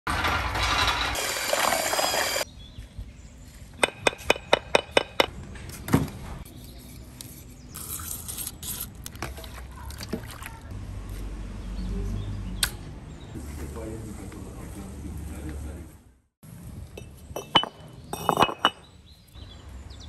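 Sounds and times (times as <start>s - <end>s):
scraping and handling noises: 17.0s - 18.9s.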